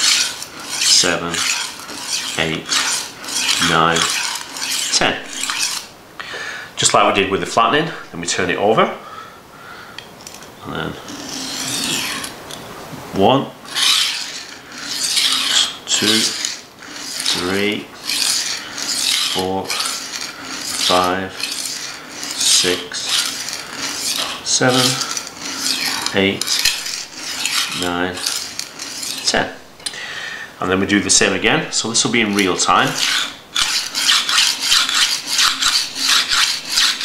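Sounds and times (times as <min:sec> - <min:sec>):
knife stroking oilstone: 0:00.0 - 0:05.9, 0:10.9 - 0:12.4, 0:13.6 - 0:29.6, 0:31.8 - 0:37.0.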